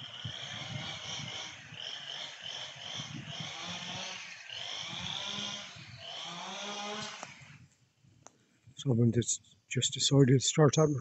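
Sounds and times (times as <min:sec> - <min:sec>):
chainsaw revving: 0:00.0 - 0:07.6.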